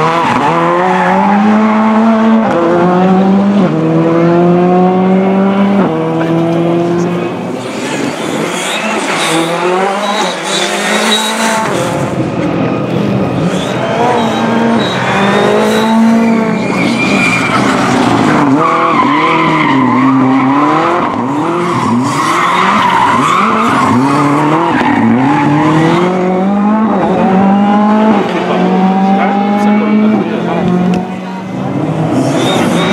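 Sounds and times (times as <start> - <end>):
rally car engines revving: 0.0 - 32.9
tyre squeal: 7.6 - 12.0, 13.4 - 25.6, 32.2 - 32.9.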